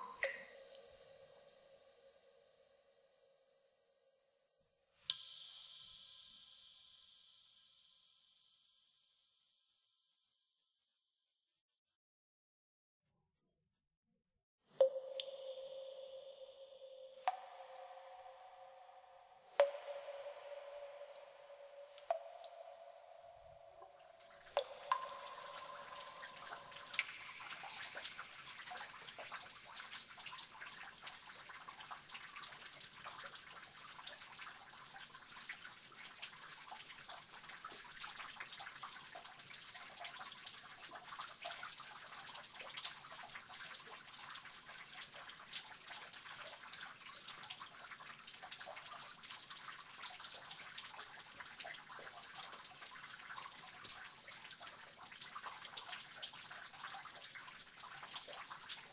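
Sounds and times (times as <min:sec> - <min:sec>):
soft water hiss: 0:00.0 - 0:03.1, 0:05.0 - 0:09.0, 0:14.8 - 0:58.9
water dripping in cave: 0:00.0 - 0:03.8, 0:04.8 - 0:09.0, 0:14.7 - 0:58.9
loud ringing drip: 0:14.8 - 0:28.4.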